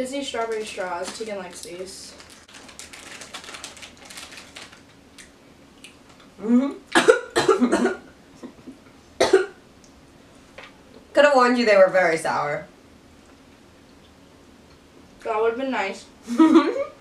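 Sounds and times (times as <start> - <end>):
plastic wrapper crinkling: 0.2 - 5.3
person coughing: 6.6 - 8.1, 9.2 - 9.6.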